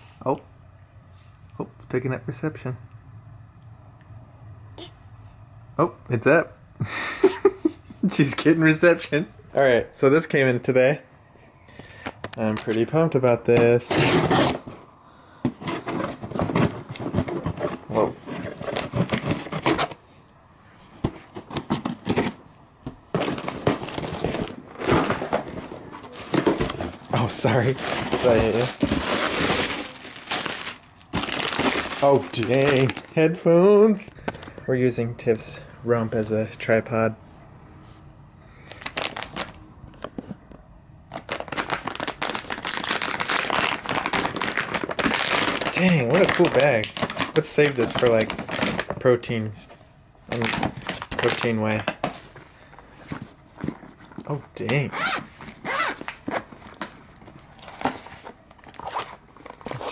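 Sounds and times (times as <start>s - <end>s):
cardboard box scraping and rustling: 15.5s - 20.0s, 23.1s - 32.1s
plastic packaging crinkling: 23.1s - 33.3s, 38.6s - 39.6s, 41.1s - 49.3s, 50.3s - 59.9s.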